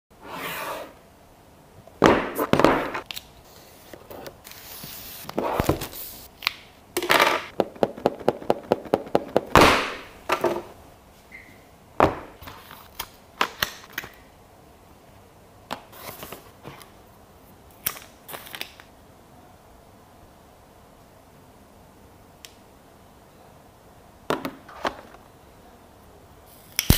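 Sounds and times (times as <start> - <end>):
cardboard box thunk on wooden table: 2.0 - 3.0
packaging sliding and rubbing: 2.3 - 6.3.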